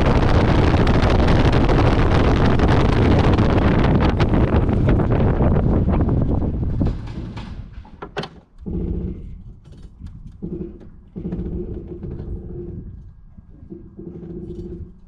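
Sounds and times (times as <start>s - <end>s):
propeller airplane engine: 0.0s - 6.3s
low humming: 0.0s - 7.8s, 8.6s - 15.0s.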